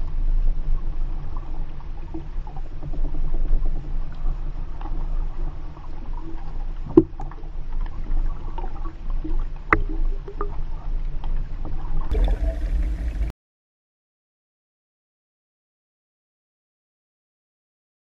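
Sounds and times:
muffled underwater water rushing: 0:00.0 - 0:13.3.

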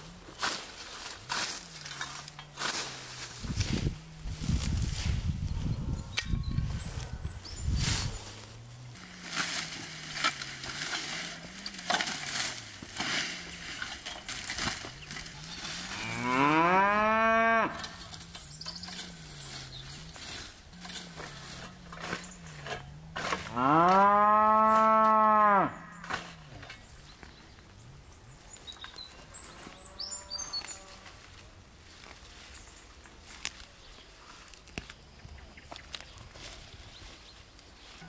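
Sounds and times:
cow mooing: 0:15.9 - 0:18.0, 0:23.4 - 0:26.1.

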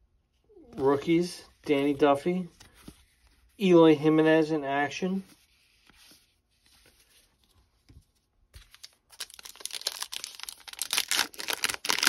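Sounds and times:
foil wrapper tearing and crinkling: 0:08.6 - 0:12.0.

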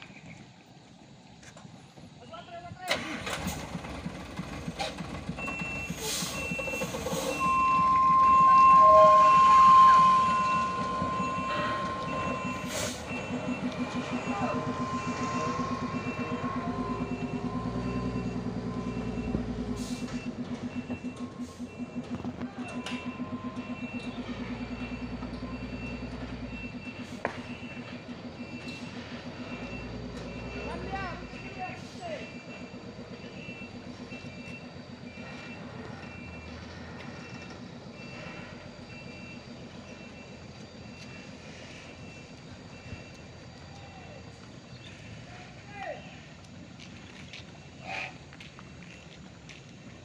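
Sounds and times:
diesel truck engine running: 0:00.2 - 0:50.0
reversing alarm beeping: 0:05.2 - 0:45.2.

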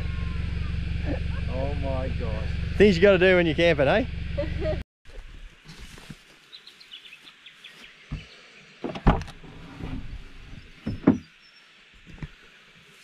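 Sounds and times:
car door clunk: 0:08.8 - 0:09.4, 0:10.8 - 0:11.2
car door opening: 0:08.8 - 0:10.1.

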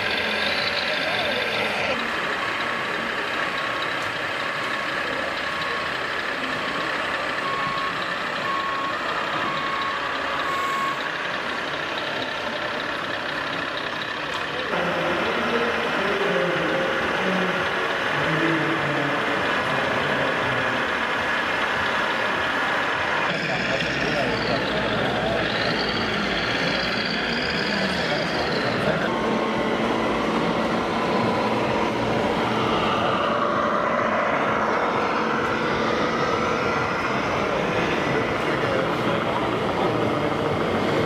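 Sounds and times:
reversing beeper: 0:00.0 - 0:13.0, 0:14.6 - 0:40.5
crowd chatter in a hall: 0:22.2 - 0:32.0.

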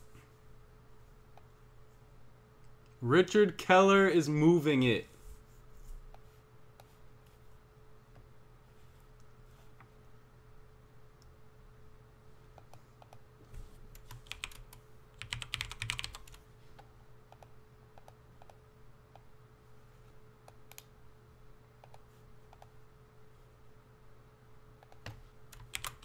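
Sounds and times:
typing on computer keyboard: 0:13.9 - 0:16.4, 0:24.8 - 0:26.0.

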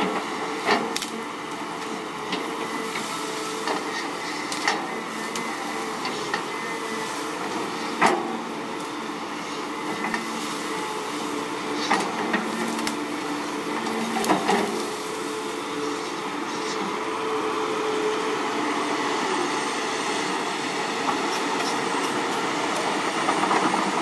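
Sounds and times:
excavator engine running: 0:00.0 - 0:24.0
stems and roots snapping: 0:00.7 - 0:01.2, 0:11.8 - 0:13.1.

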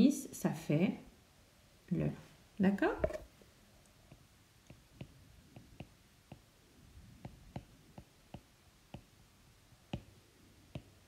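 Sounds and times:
stylus tapping on glass screen: 0:04.1 - 0:06.5, 0:07.2 - 0:09.1, 0:09.9 - 0:11.0.

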